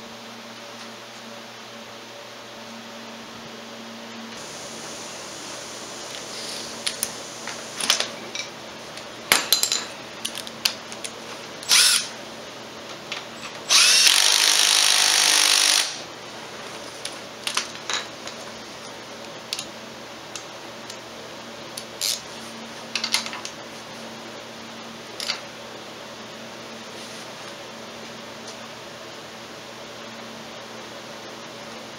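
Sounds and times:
power drill running: 11.6 - 12.1, 13.6 - 16.1.

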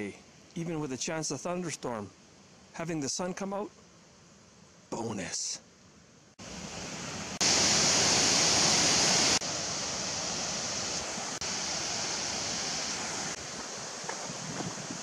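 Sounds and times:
waterfall rushing: 6.4 - 15.0.

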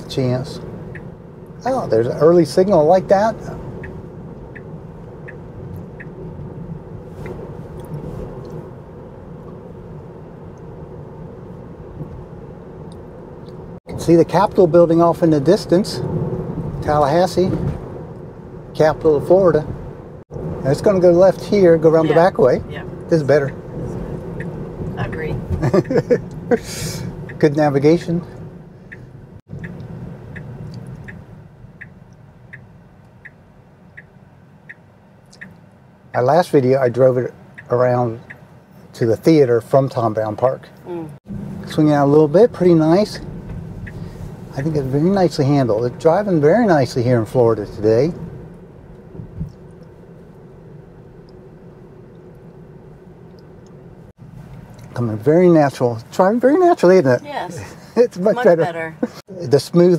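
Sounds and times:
turn signal ticking: 0.0 - 14.4, 19.8 - 36.1, 37.2 - 38.9, 40.7 - 46.1
low cabin hum: 0.0 - 59.9
road and tyre rumble: 0.0 - 59.9.

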